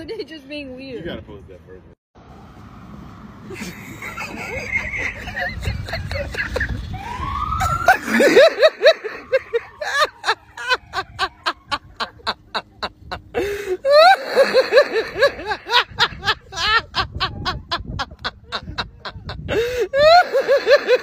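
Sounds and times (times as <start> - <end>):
person laughing hard: 3.5 - 21.0
police siren whoop: 6.6 - 11.8
wheezing gasps: 13.4 - 13.8, 19.5 - 20.0.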